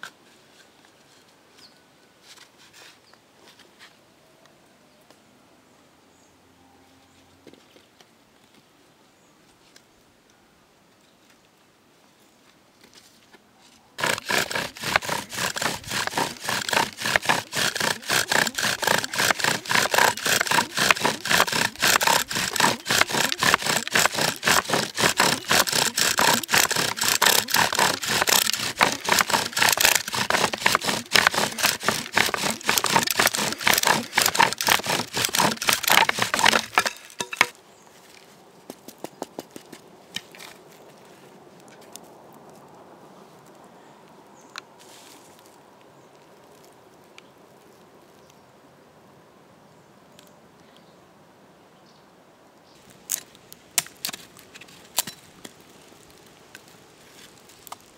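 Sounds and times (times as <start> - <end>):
bow drill spindle grinding wood: 14.0 - 37.5.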